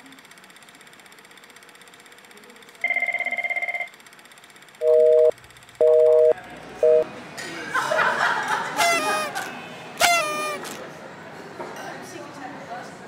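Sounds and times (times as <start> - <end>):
telephone ringing: 2.8 - 4.0, 4.8 - 7.1.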